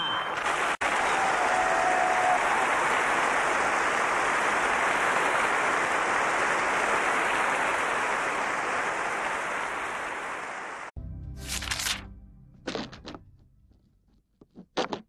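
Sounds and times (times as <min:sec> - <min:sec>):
audience applauding: 0:00.4 - 0:10.9.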